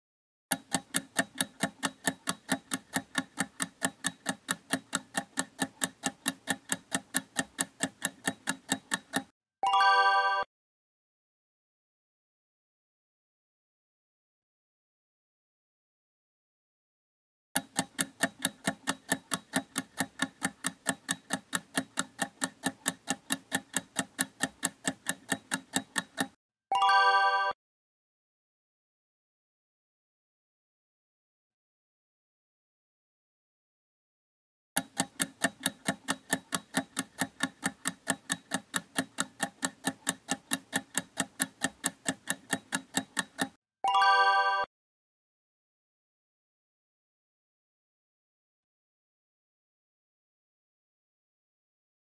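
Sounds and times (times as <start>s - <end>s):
clock ticking: 0.5s - 9.3s, 17.6s - 26.4s, 34.8s - 43.6s.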